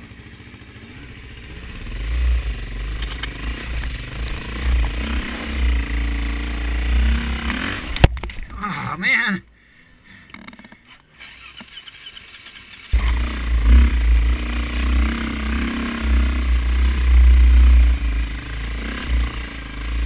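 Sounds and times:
dirt bike engine revving: 0:00.0 - 0:08.1, 0:11.2 - 0:20.0.

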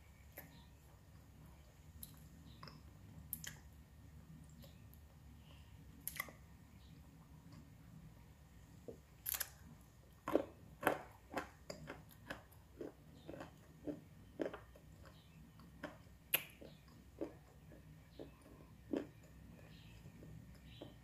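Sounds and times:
clay being chewed crunching: 0:09.2 - 0:21.0.

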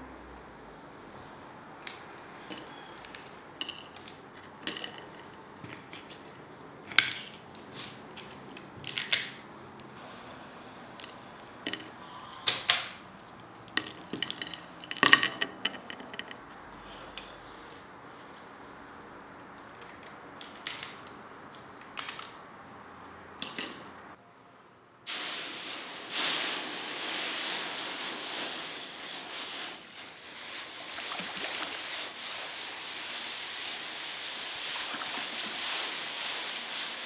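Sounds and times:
nuts clicking on clay dishes: 0:10.9 - 0:16.6.

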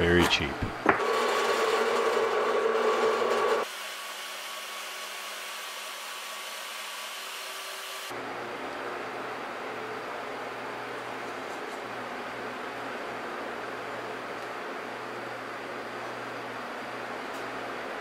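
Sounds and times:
drill press whining: 0:00.9 - 0:03.8.

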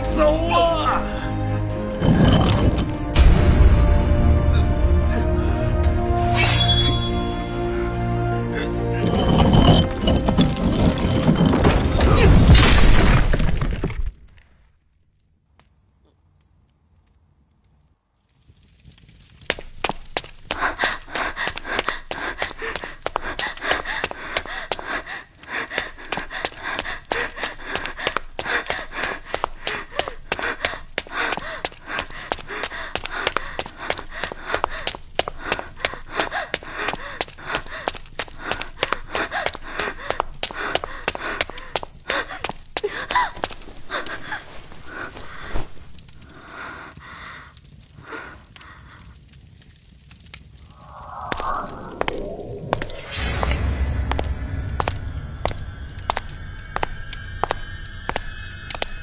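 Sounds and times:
woman panting and gasping: 0:20.4 - 0:49.2
woman breathing hard: 0:20.5 - 0:49.2.

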